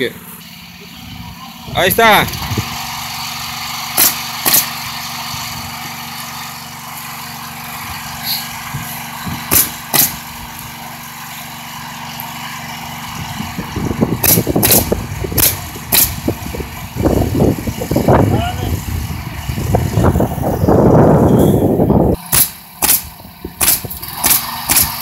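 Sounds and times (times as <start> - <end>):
steady motor drone: 0.0 - 25.0
nail gun shots: 3.9 - 4.9, 9.5 - 10.3, 14.2 - 16.2, 22.2 - 25.0.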